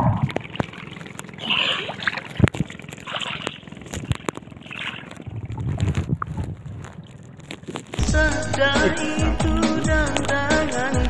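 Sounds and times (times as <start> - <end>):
seawater sloshing and splashing: 0.0 - 8.0
muffled underwater rumble: 0.0 - 8.3.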